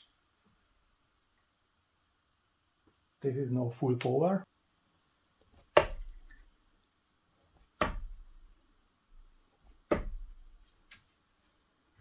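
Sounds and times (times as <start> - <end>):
sharp knocks in a small room: 5.6 - 6.5, 7.6 - 11.0.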